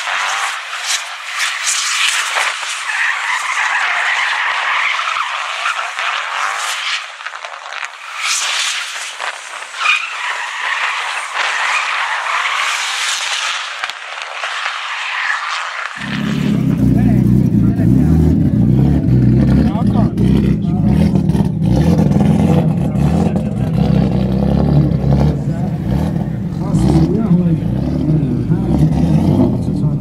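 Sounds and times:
sharp cracks: 0:00.0 - 0:17.1
tyres squealing on concrete: 0:00.0 - 0:17.1
rally car engine revving: 0:00.0 - 0:30.0.

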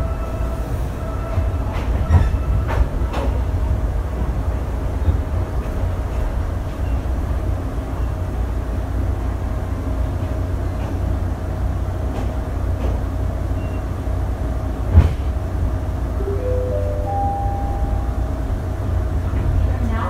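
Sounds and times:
train coach rumble: 0:00.0 - 0:20.0.

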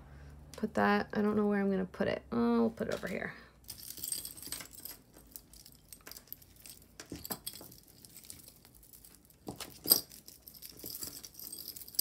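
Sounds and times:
jewelry chains and beads clinking: 0:03.0 - 0:12.0.

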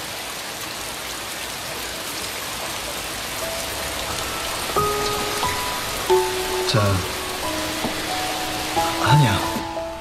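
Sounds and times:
heavy rain: 0:00.0 - 0:10.0
soft background music: 0:03.3 - 0:10.0.

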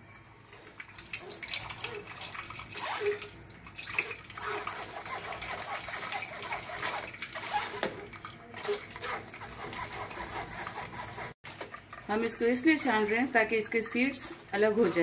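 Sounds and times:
juice trickling into a bowl: 0:00.6 - 0:09.0
wet squelching: 0:00.8 - 0:09.9.

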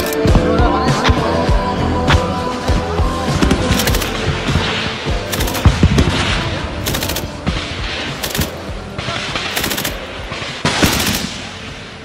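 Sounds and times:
automatic gunfire bursts: 0:05.2 - 0:06.1, 0:06.8 - 0:07.4, 0:08.2 - 0:11.4.

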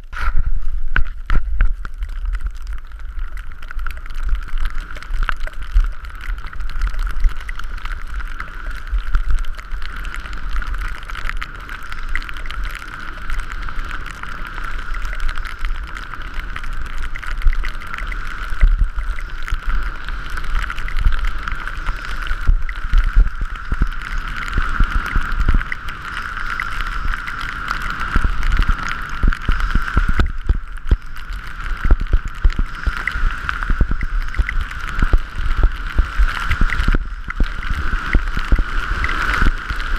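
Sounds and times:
wind buffeting microphone: 0:15.8 - 0:39.9.

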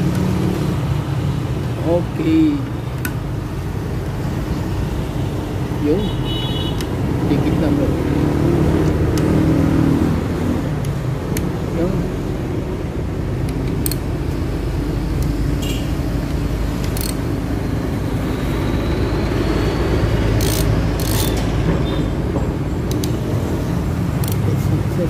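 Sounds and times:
motor vehicle rumble: 0:00.0 - 0:25.0
socket tool metallic clicks: 0:02.9 - 0:03.2, 0:10.8 - 0:11.5, 0:13.4 - 0:14.4, 0:15.1 - 0:15.4, 0:16.7 - 0:17.4, 0:20.4 - 0:21.5, 0:22.8 - 0:23.3, 0:24.1 - 0:24.6.

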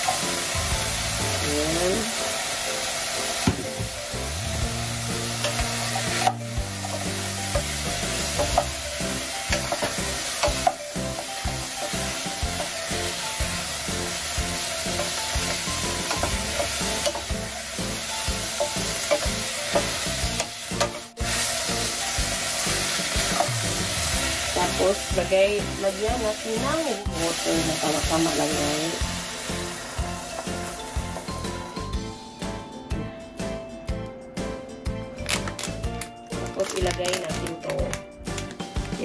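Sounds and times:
food sizzling in hot oil: 0:00.0 - 0:31.9
wooden spoon knocking and scraping pot: 0:05.4 - 0:08.8, 0:09.5 - 0:13.2.

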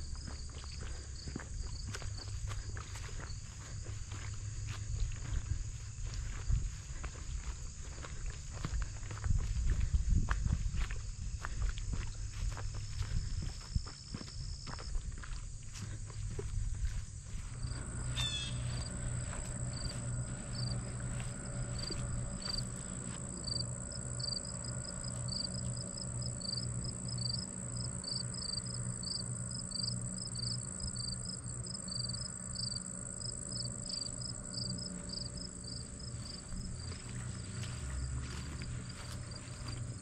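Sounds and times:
footsteps: 0:00.0 - 0:25.8, 0:34.9 - 0:40.0
crickets chirping: 0:00.0 - 0:40.0.

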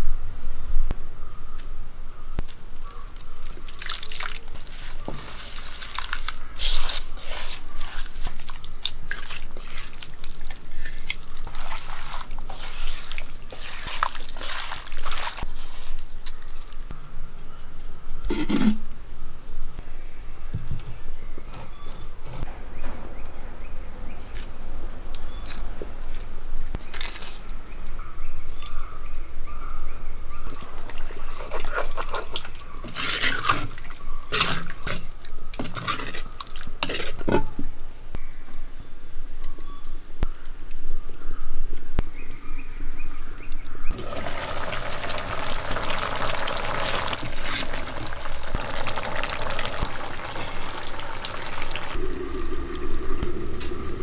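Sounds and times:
curry sizzling hiss: 0:43.9 - 0:54.0
water trickling into cup: 0:43.9 - 0:54.0.

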